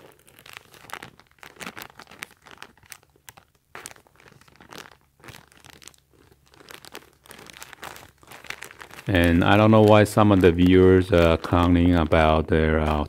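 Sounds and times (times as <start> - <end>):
plastic packaging crinkling: 0.0 - 13.0.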